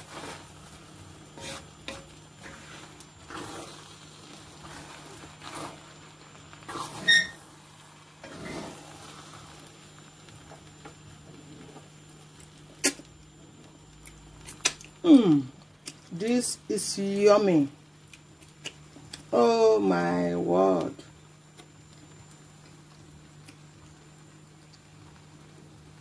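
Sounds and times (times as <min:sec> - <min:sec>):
wooden spoon stirring rice: 0:00.0 - 0:12.4
low steady hum: 0:00.0 - 0:26.0
short squeak: 0:07.0 - 0:07.4.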